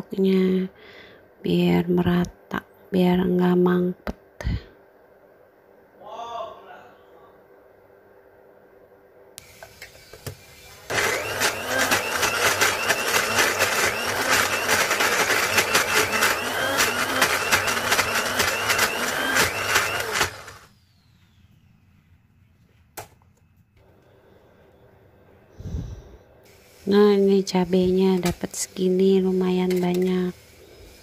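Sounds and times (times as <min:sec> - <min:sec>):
blender motor running: 0:09.4 - 0:20.7.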